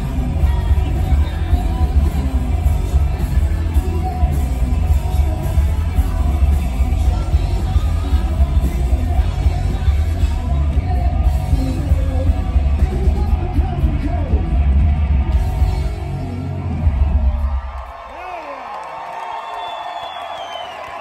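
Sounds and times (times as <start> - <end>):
man singing: 0.0 - 14.7
rock band playing live: 0.0 - 18.0.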